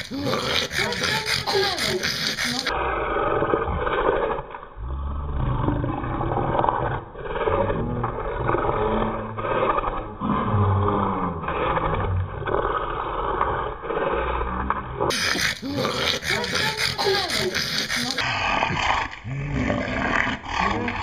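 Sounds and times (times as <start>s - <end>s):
dog breathing heavily: 0.0s - 2.8s, 15.1s - 19.1s
dog making rough vocal sounds: 0.0s - 21.0s.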